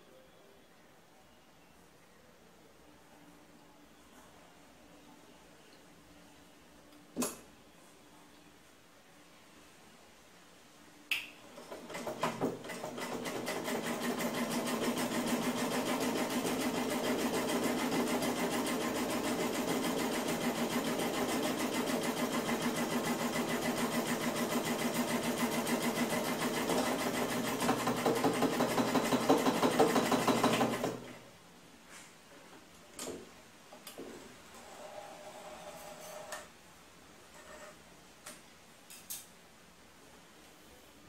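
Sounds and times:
sewing machine motor whirr: 11.7 - 31.1.

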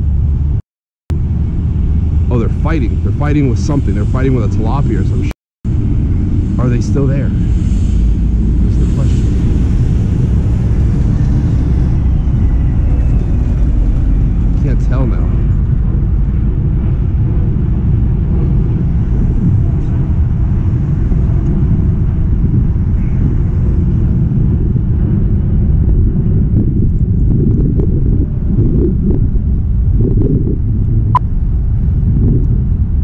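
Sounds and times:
wind buffeting microphone: 0.0 - 33.0.

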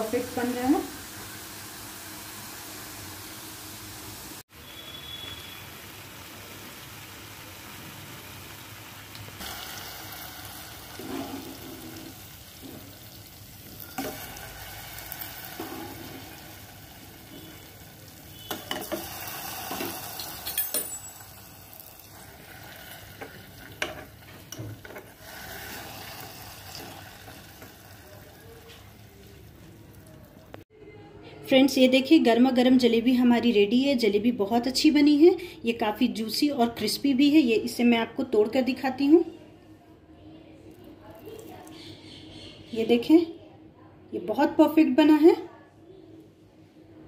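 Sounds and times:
food sizzling in hot oil: 0.0 - 30.6
utensil clinking on pan: 19.7 - 21.5.

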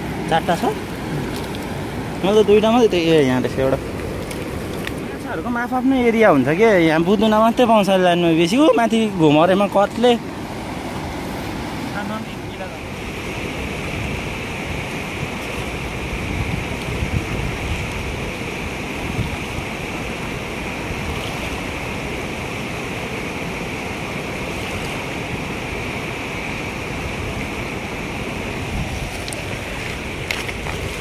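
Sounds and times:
river rushing over stones: 0.0 - 31.0
wind buffeting microphone: 0.0 - 31.0.

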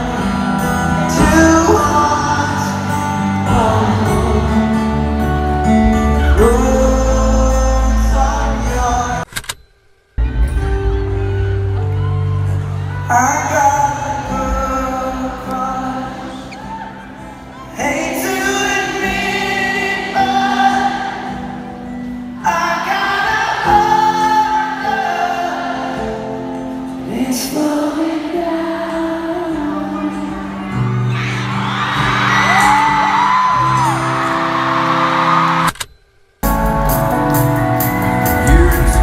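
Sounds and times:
live pop music with singing: 0.0 - 9.3, 10.4 - 35.7, 36.4 - 39.0
crowd screaming and cheering: 10.2 - 35.8.

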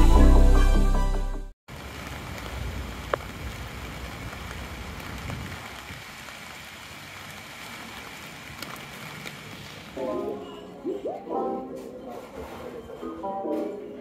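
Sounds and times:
rain on wet pavement: 1.7 - 10.3.

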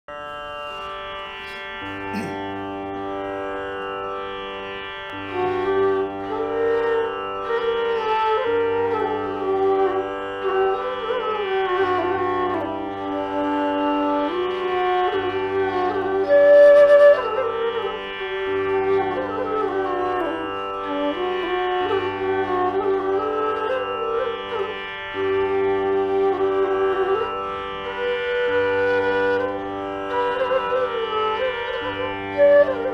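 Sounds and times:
flute player's breath: 1.4 - 2.5
bamboo flute melody: 5.1 - 32.9.

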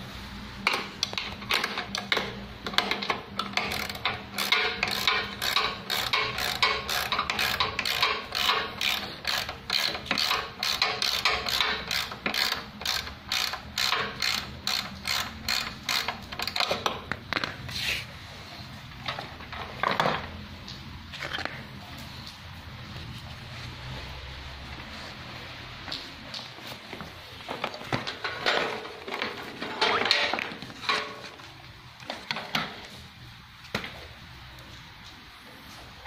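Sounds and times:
ratcheting metallic clicks: 0.7 - 17.0.

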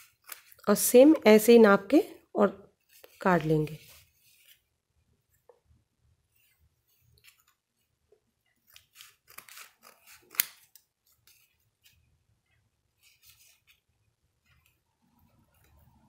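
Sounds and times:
scissors snipping paper: 0.0 - 0.6, 8.6 - 11.9.

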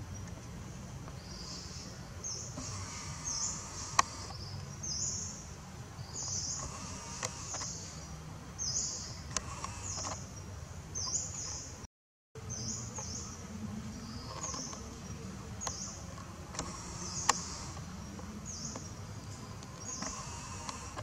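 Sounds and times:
bird chirping: 0.0 - 11.8, 12.4 - 21.0
sharp clicks: 3.8 - 4.4, 16.5 - 18.9.

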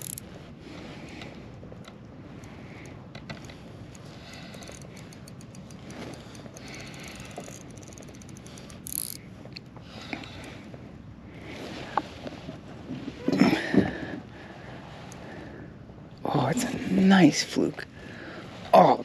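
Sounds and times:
fishing reel clicking: 0.0 - 0.3, 2.4 - 9.2.

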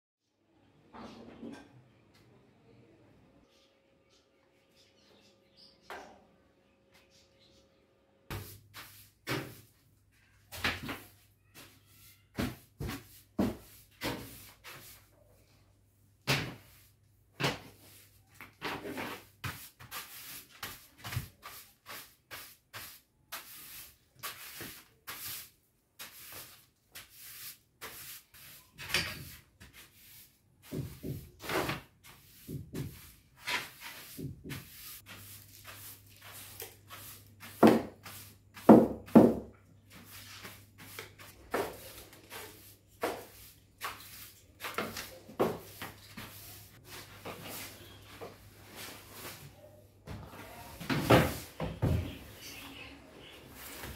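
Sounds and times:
brush scrubbing floor: 8.3 - 9.8, 10.8 - 15.3, 16.5 - 49.7.

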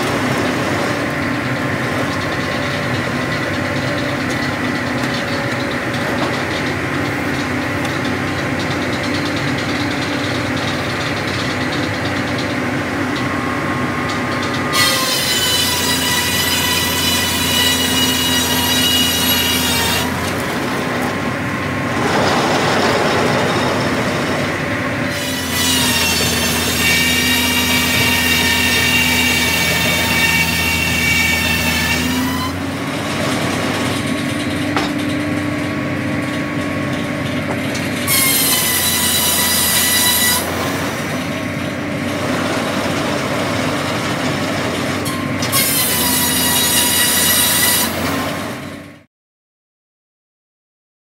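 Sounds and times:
circular saw blade cutting log: 0.0 - 35.0, 36.7 - 48.7
machinery humming: 16.0 - 30.2.

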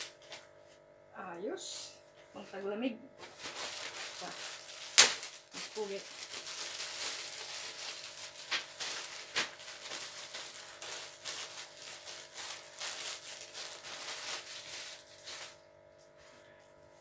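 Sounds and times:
plastic bag crinkling: 3.2 - 15.7.

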